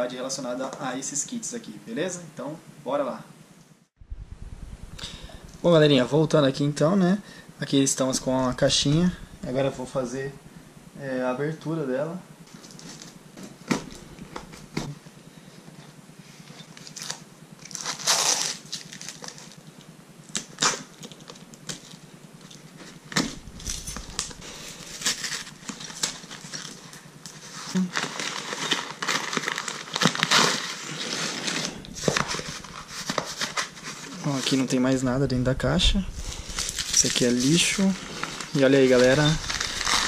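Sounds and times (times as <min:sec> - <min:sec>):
cardboard tearing: 0:16.9 - 0:19.5, 0:27.4 - 0:34.2, 0:37.9 - 0:40.0
paper wrapping crinkling: 0:23.4 - 0:34.4, 0:36.4 - 0:40.0.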